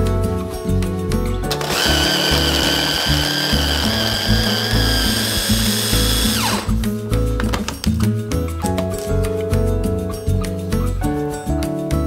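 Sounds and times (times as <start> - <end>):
hand blender motor whine: 1.5 - 6.8.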